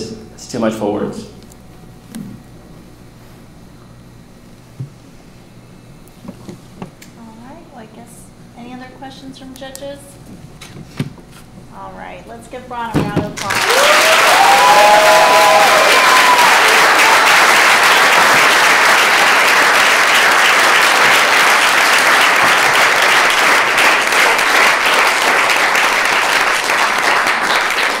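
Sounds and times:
audience applauding: 0:13.4 - 0:28.0.

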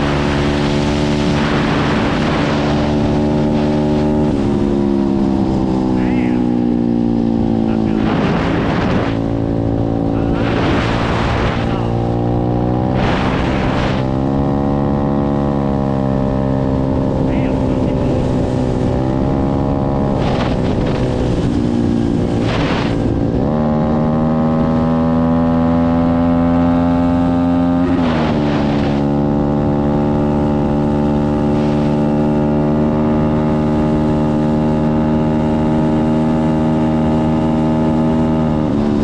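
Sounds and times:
wind gusts on microphone: 0:00.0 - 0:25.0, 0:27.8 - 0:32.4
pit bike engine running hard: 0:00.0 - 0:39.0.

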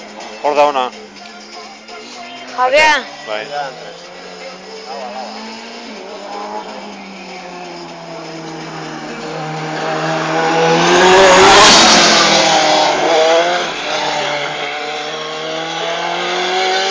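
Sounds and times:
race car engine revving past: 0:03.1 - 0:16.9.

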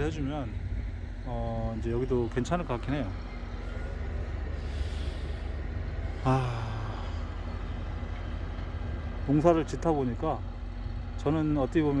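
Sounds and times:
low rumble outdoors: 0:00.0 - 0:12.0
breathy hiss: 0:04.5 - 0:07.3.

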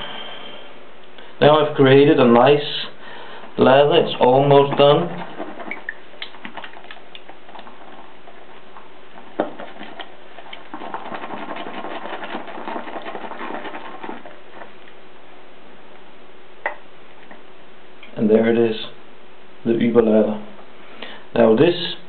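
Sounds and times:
shaving brush whipping lather: 0:09.4 - 0:14.7.

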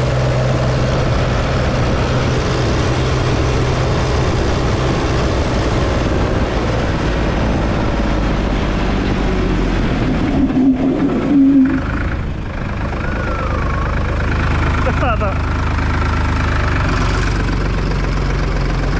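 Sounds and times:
tractor diesel engine running: 0:00.0 - 0:18.9
tyre skidding squeal: 0:10.0 - 0:14.5.

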